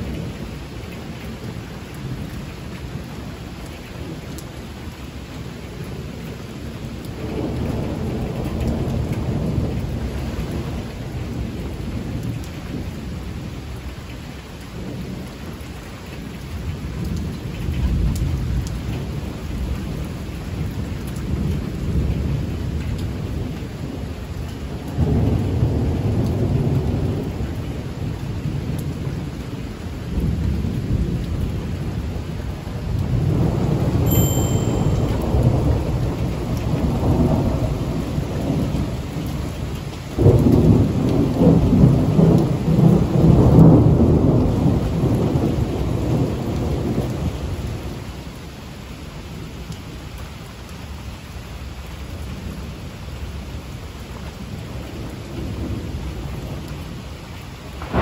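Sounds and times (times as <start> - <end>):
steady rain: 0.0 - 58.0
thunder rumbling: 16.8 - 48.0, 57.7 - 58.0.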